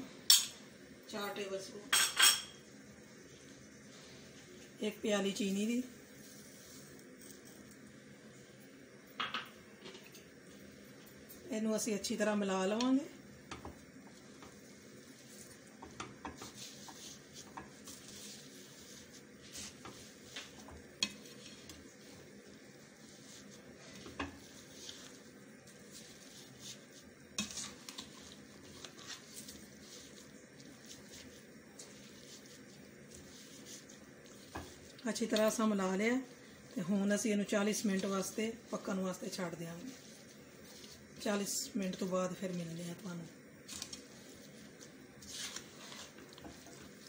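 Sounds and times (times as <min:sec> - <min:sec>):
spoon scraping wet food in pan: 0:12.8 - 0:43.0, 0:43.6 - 0:47.0.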